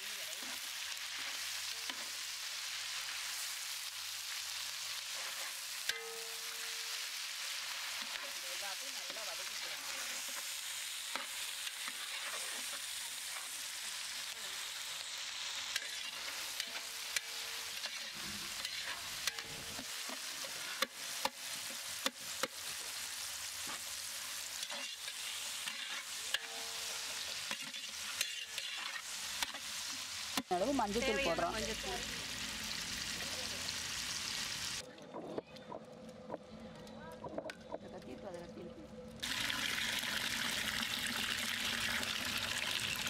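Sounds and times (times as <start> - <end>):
vegetables sizzling in oil: 0.0 - 34.8, 39.2 - 43.0
metal spatula scraping pot: 15.7 - 20.8, 24.6 - 29.6.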